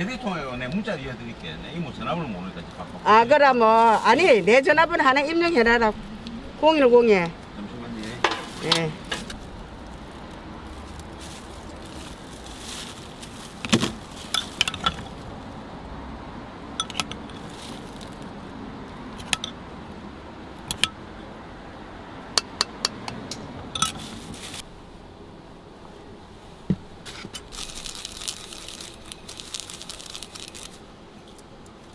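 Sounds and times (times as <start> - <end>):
spoon clinking against metal bowls: 14.3 - 15.1, 16.8 - 17.4.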